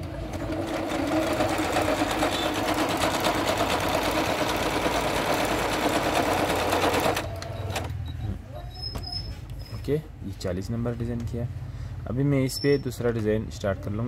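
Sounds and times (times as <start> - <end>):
sewing machine stitching: 0.0 - 8.0.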